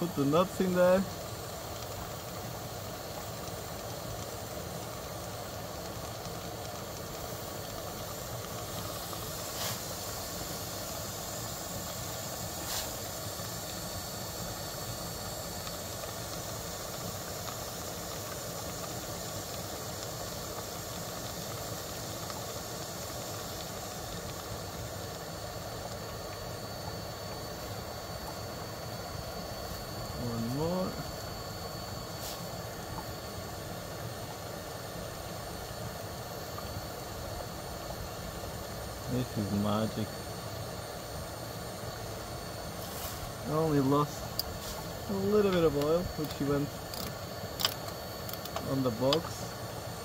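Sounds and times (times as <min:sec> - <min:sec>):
vacuum cleaner hissing: 0:00.0 - 0:01.8, 0:07.0 - 0:24.4, 0:26.4 - 0:32.8, 0:41.5 - 0:50.0.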